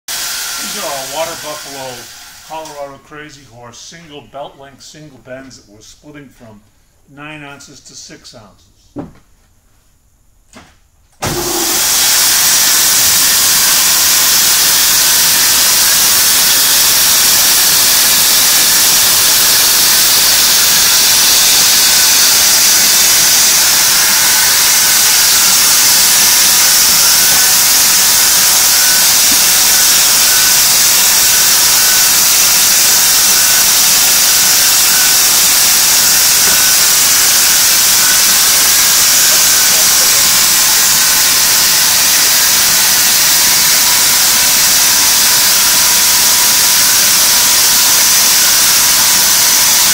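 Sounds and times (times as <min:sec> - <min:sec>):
high-pitched machine rushing noise: 0:00.1 - 0:02.9, 0:11.3 - 0:49.9
machine switching on: 0:11.2 - 0:47.6.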